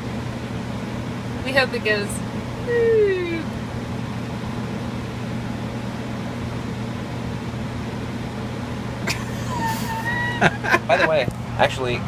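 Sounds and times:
blower fans running: 0.0s - 12.0s.

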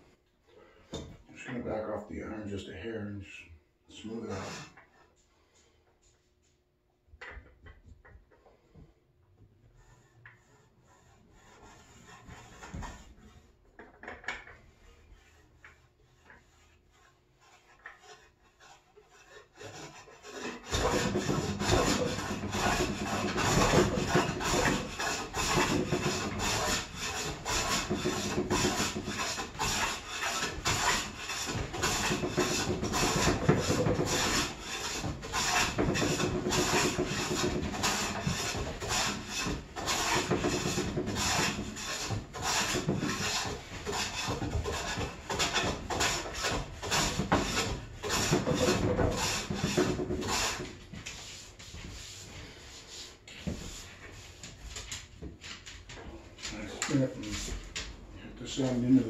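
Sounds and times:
hand plane shaving wood: 9.7s - 13.6s, 14.4s - 54.4s.

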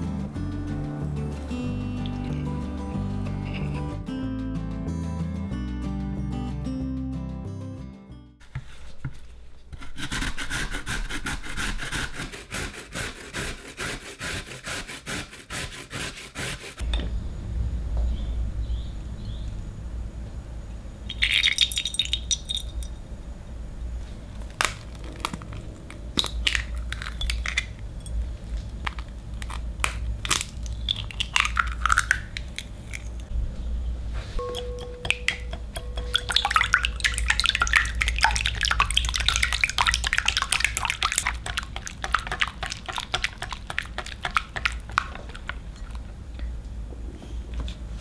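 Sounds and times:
low steady hum: 0.0s - 4.1s, 16.8s - 48.0s
eggs cracking with clicks: 2.0s - 2.5s, 21.1s - 22.9s, 24.3s - 33.3s, 34.5s - 46.5s
carrot rasped on a grater: 9.8s - 16.8s
oil poured into a glass bowl: 21.1s - 22.9s, 34.5s - 45.1s.

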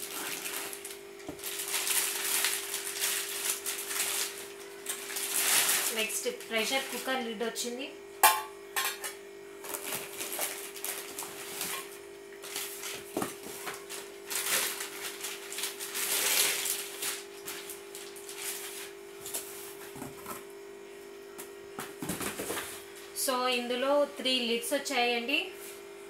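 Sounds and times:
plastic bag crinkling: 0.0s - 7.2s, 9.7s - 19.4s.

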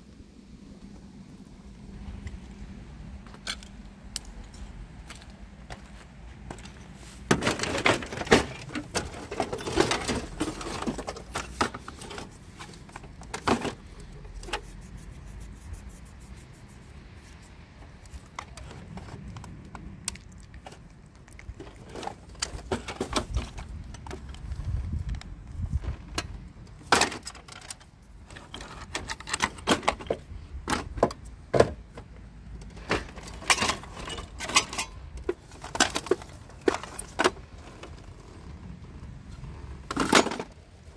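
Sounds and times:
scrap metal clattering: 6.5s - 14.9s, 32.7s - 38.0s.

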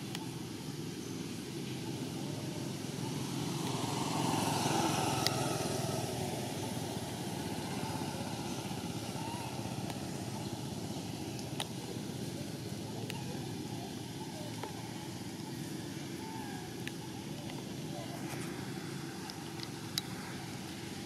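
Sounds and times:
distant traffic rumble: 0.0s - 21.0s
vehicle passing: 2.0s - 11.1s.

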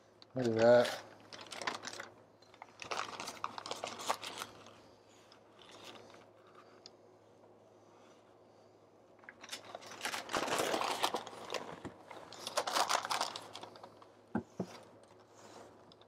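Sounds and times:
paper crinkling and rustling: 0.4s - 6.8s, 9.3s - 16.0s.

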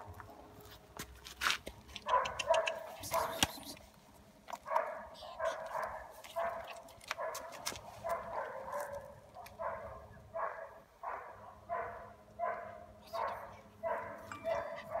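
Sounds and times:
dog barking: 2.1s - 3.4s, 4.6s - 15.0s.

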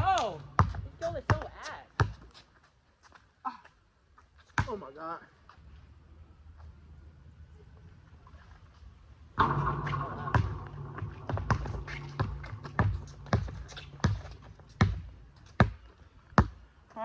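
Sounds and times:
loud ringing hit: 9.4s - 15.2s
basketball dribbling on hard court: 11.4s - 15.8s.

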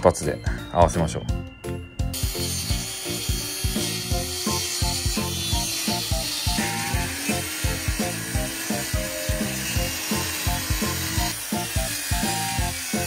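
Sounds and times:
background music with quick beat: 0.0s - 13.0s
circular saw cutting plywood: 2.1s - 13.0s.

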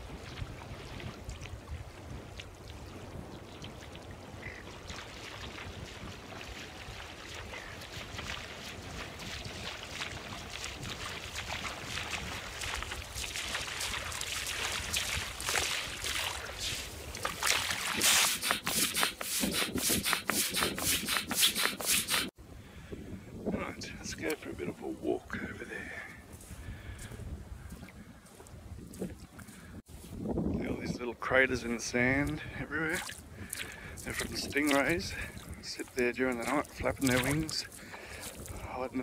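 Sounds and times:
splashing steps in water: 0.0s - 22.3s, 32.2s - 39.0s
low wind rumble: 22.3s - 31.2s.

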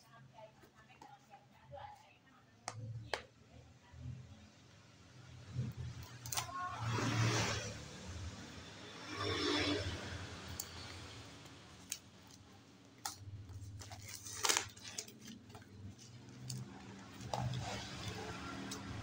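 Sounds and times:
plastic packaging crinkling: 11.8s - 19.0s.

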